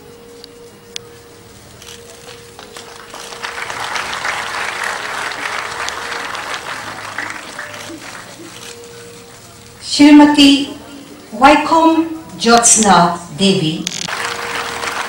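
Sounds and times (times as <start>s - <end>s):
audience applause: 2.1s - 9.7s, 14.0s - 15.0s.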